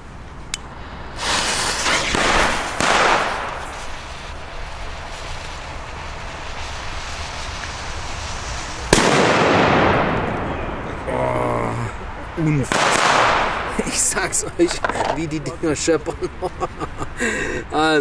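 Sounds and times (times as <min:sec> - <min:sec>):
fuse hissing: 0:00.6 - 0:09.9
firecracker bang with echo: 0:01.2 - 0:04.3, 0:08.7 - 0:11.0, 0:12.7 - 0:14.0.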